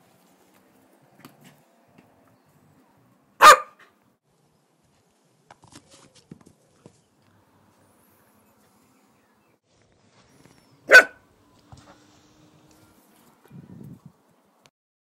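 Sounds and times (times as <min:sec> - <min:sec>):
dog barking: 0:03.4 - 0:04.0, 0:10.9 - 0:11.2.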